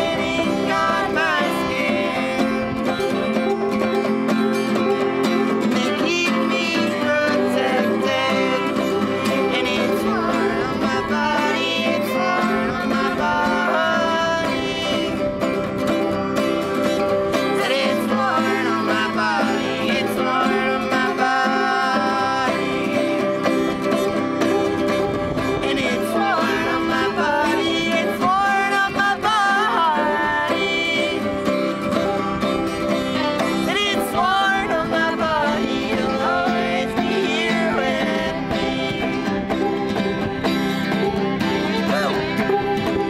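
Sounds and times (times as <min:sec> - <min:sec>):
acoustic guitar: 0:00.0 - 0:43.0
banjo: 0:00.0 - 0:43.0
fiddle: 0:00.0 - 0:43.0
person singing: 0:00.0 - 0:43.0.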